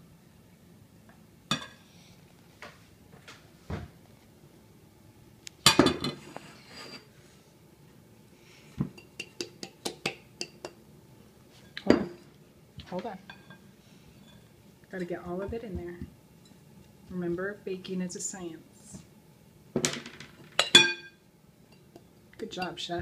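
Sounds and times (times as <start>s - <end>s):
glass bowls clinking: 20.5s - 22.0s.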